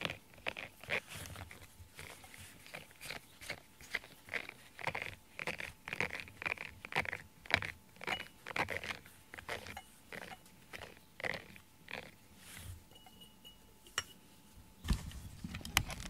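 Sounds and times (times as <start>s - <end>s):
fur scraped from rubber brush: 12.4s - 12.8s.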